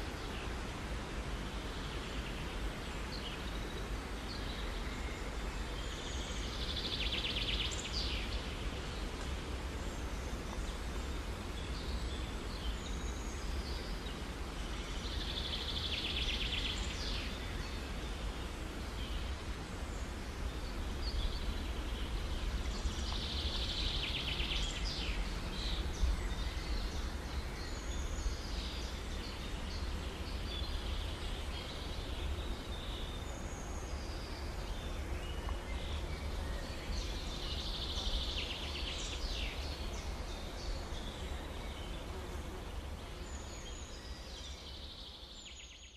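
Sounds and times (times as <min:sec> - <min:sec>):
small birds singing trills: 0:00.0 - 0:45.9.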